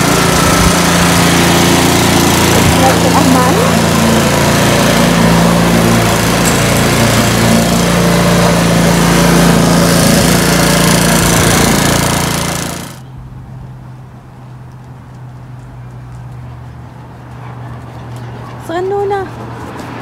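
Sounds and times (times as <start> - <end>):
lawn mower engine running: 0.0 - 13.1.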